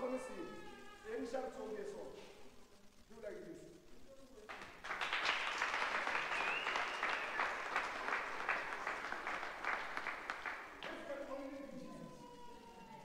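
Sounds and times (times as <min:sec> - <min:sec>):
people clapping: 0:04.5 - 0:11.6.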